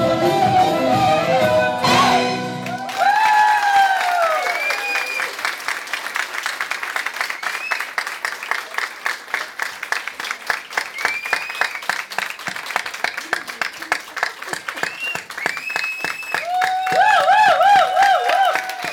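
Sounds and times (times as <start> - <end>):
high cheering calls: 1.8 - 5.6, 10.7 - 18.9
crowd clapping: 2.4 - 18.9.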